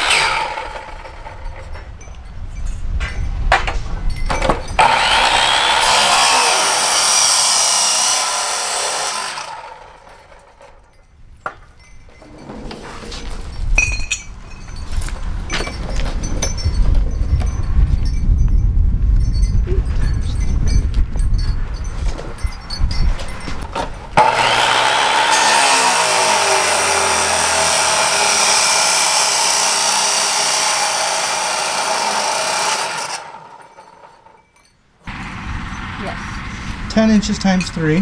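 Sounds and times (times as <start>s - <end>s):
saw cutting steel tubing: 0.0s - 1.3s, 4.8s - 10.6s, 24.2s - 34.4s
steel knocks and clinks: 1.4s - 4.8s, 10.4s - 18.2s.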